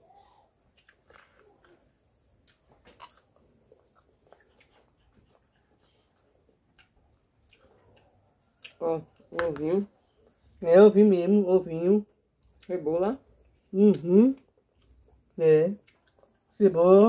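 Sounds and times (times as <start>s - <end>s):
chewing: 0.4s - 9.4s, 12.1s - 16.6s.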